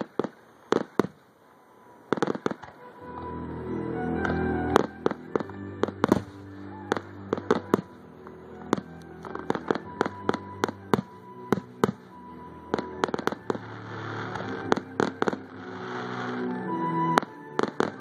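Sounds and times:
fireworks bangs and cracks: 0.0 - 1.2, 2.1 - 2.9, 4.2 - 8.0, 8.6 - 15.7, 17.2 - 18.0
fireworks crackling hiss: 0.0 - 3.4, 4.2 - 18.0.

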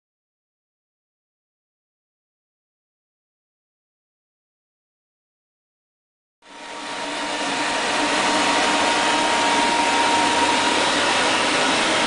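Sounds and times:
fan running with whine: 6.4 - 12.0.

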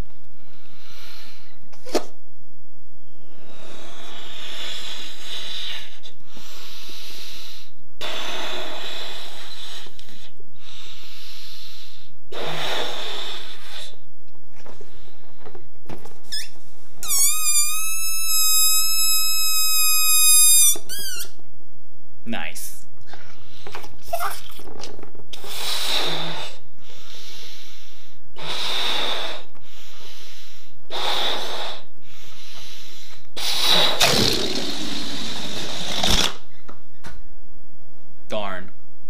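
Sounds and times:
breath blown into balloon: 3.2 - 14.1, 16.3 - 21.4, 25.3 - 36.6
balloon neck squealing: 16.2 - 21.4.

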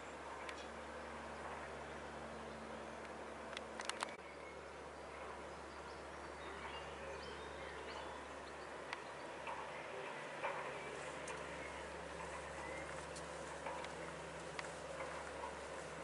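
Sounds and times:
steady outdoor background noise: 0.0 - 16.0
sharp clicks: 3.0 - 4.2.

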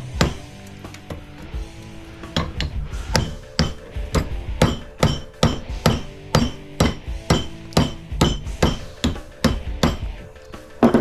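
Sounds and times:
hammer striking metal coil: 2.3 - 10.1.

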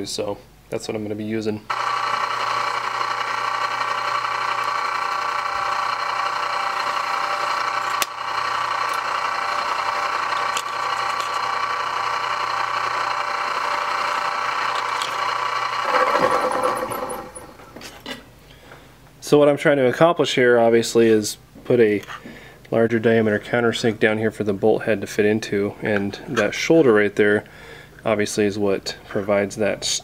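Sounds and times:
drill press running: 1.7 - 18.0.

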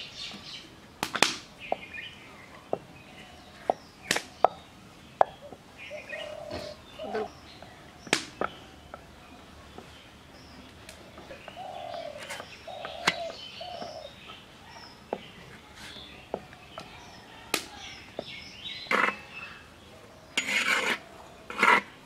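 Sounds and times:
birds chirping: 0.0 - 22.0
metal spatula scraping a pan: 18.9 - 19.3, 20.4 - 22.0.

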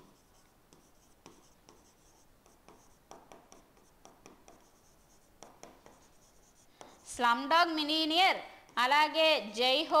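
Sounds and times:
pen tapping and scratching on board: 0.0 - 7.1, 8.6 - 8.9.

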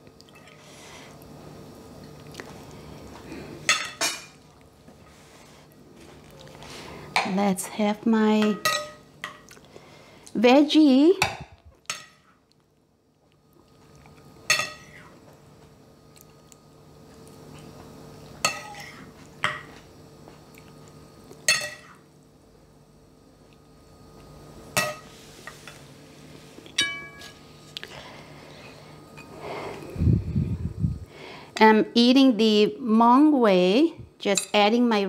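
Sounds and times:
cutlery clinking on ceramic plates: 8.4 - 9.4, 21.5 - 22.0, 26.8 - 27.4.

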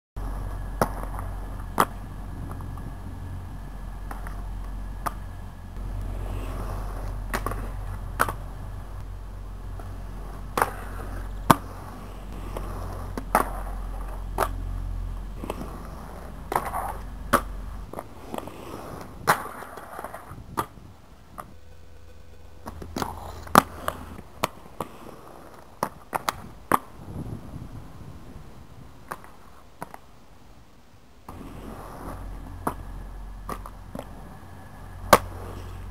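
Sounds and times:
skates clacking and scraping: 0.2 - 2.9, 4.0 - 8.6, 9.7 - 14.6, 15.2 - 27.0, 29.0 - 30.0, 31.3 - 34.3, 35.0 - 35.9
inline skates rolling on concrete: 0.2 - 21.6, 22.5 - 27.5, 29.0 - 30.1, 31.3 - 35.9
low rumble: 0.2 - 24.4, 31.3 - 35.9.

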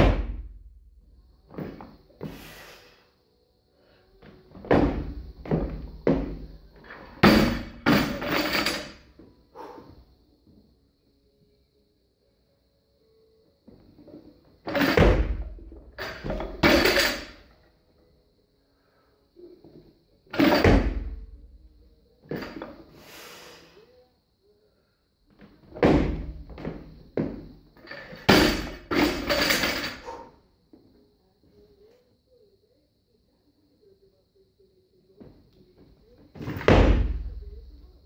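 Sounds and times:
barbell dropped with loud bang: 7.2 - 9.0, 14.7 - 17.4, 20.4 - 21.2, 25.8 - 26.5, 28.1 - 30.2, 36.5 - 37.4.

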